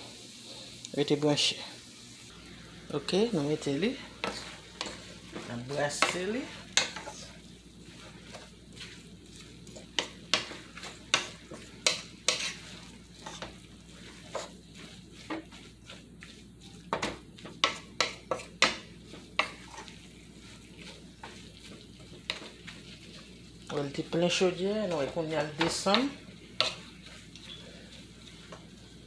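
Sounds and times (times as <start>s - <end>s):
soft sizzle: 0.0s - 29.0s
utensil scraping a metal pot: 7.9s - 16.3s.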